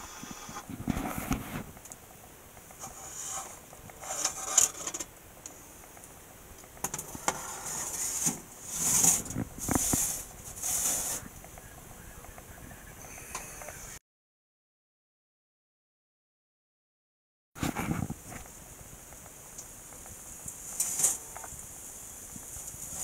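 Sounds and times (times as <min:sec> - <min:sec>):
cast iron pan scraping and clunking: 0:02.8 - 0:05.1, 0:06.8 - 0:11.3, 0:20.7 - 0:21.5.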